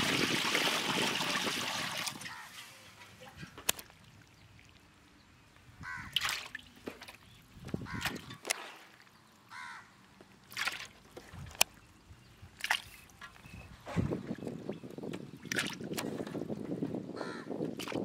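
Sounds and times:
crow cawing: 0:02.3 - 0:02.6, 0:05.8 - 0:06.2, 0:09.5 - 0:09.9, 0:17.2 - 0:17.5.

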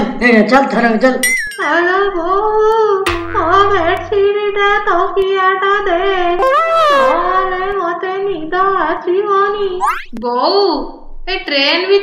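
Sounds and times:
high-pitched voice singing: 0:06.4 - 0:07.5.

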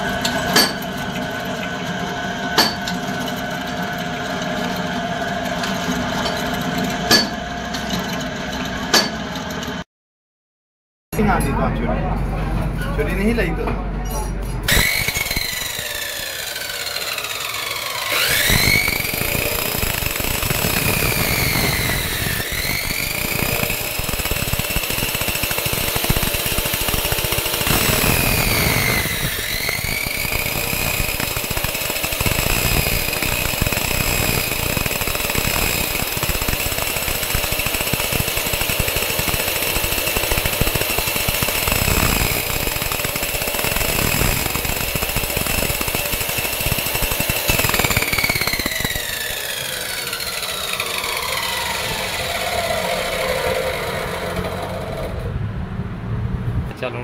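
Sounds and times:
chop saw motor whining: 0:00.0 - 0:09.8, 0:14.7 - 0:55.4
saw wheel grinding metal: 0:00.0 - 0:09.8, 0:14.6 - 0:55.3.

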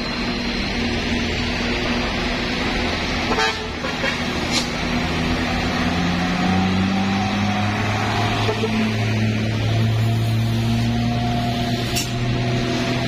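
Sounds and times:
diesel truck engine: 0:00.0 - 0:13.0
truck horn toot: 0:03.2 - 0:04.3, 0:08.4 - 0:08.9.

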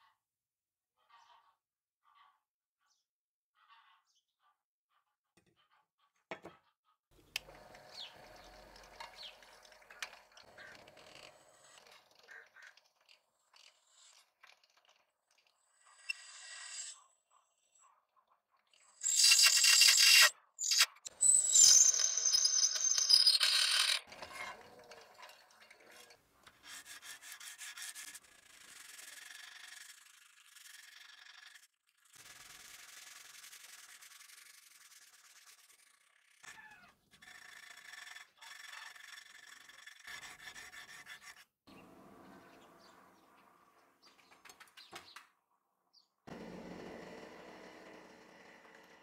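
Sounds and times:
high chirps: 0:19.0 - 0:24.1
sandpaper rubbing on metal: 0:26.6 - 0:30.5, 0:32.2 - 0:36.0, 0:38.7 - 0:41.5
drill press whining: 0:46.3 - 0:49.0.

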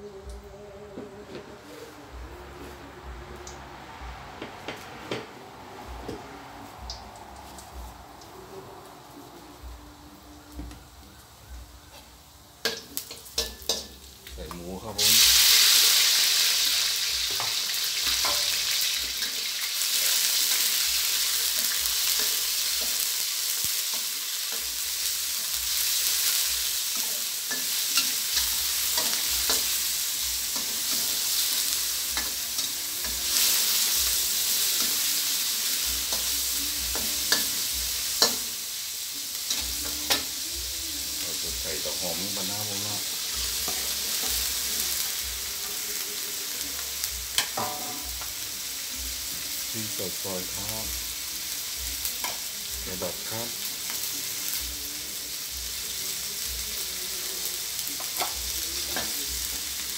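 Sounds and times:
pork sizzling in hot oil: 0:04.7 - 0:59.9.

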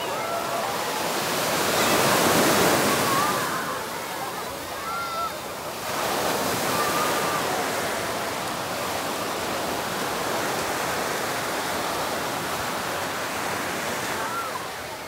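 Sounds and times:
waves breaking on beach: 0:00.0 - 0:15.0.

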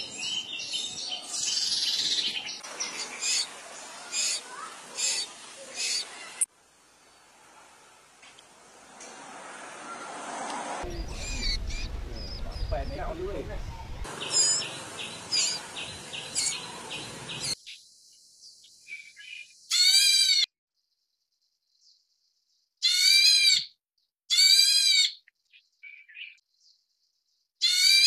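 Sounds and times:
loud clear bird calls: 0:00.0 - 0:06.5, 0:10.9 - 0:17.8, 0:22.8 - 0:28.0
high bird chirps: 0:10.9 - 0:17.8.

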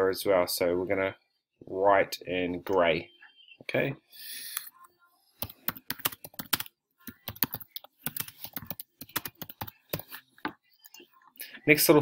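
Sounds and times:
computer keyboard typing: 0:05.4 - 0:10.2.

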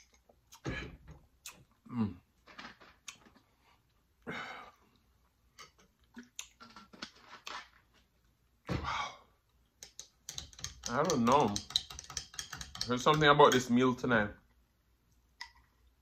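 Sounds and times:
person chewing: 0:00.0 - 0:00.8, 0:01.4 - 0:01.9, 0:02.9 - 0:04.0, 0:06.0 - 0:07.7.

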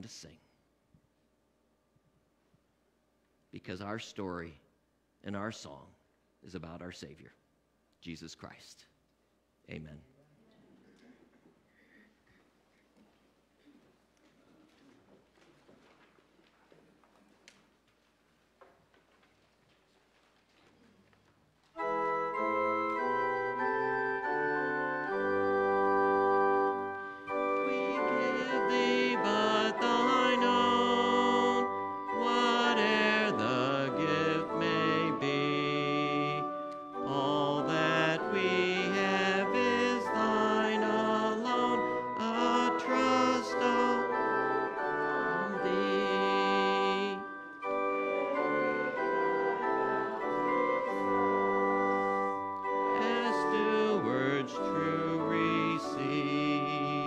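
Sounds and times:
church organ chords: 0:21.8 - 0:57.0.

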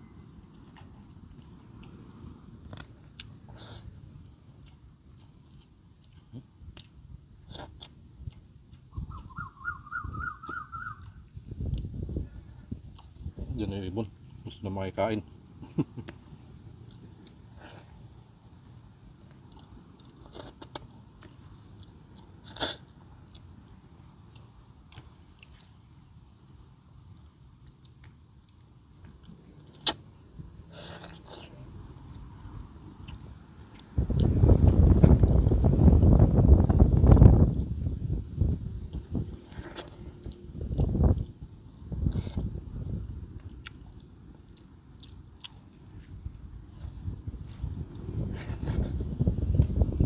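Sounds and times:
person chewing: 0:00.1 - 0:09.4, 0:10.3 - 0:13.6, 0:15.2 - 0:36.2, 0:36.9 - 0:49.8
bird chirping: 0:08.9 - 0:11.2
sharp crunch: 0:29.0 - 0:30.1.

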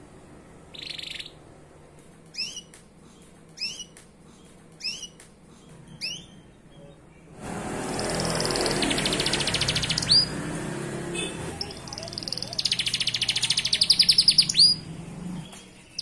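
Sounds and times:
canary chirps: 0:00.6 - 0:01.5, 0:02.3 - 0:16.0
canary buzzy trill: 0:00.7 - 0:01.4, 0:02.3 - 0:02.8, 0:03.5 - 0:04.0, 0:04.7 - 0:05.2, 0:07.5 - 0:16.0.

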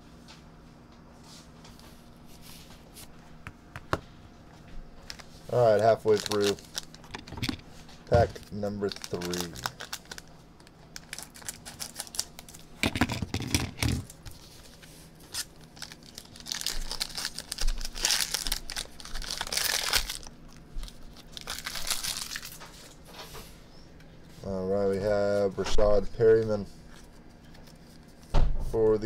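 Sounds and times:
foil wrapper tearing and crinkling: 0:05.0 - 0:07.5, 0:08.1 - 0:12.8, 0:14.0 - 0:22.9.

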